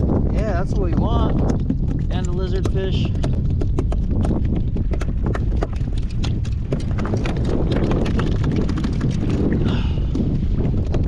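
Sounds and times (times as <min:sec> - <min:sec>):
wind rumbling on microphone: 0:00.0 - 0:11.0
sharp irregular clicks and taps: 0:00.8 - 0:09.3.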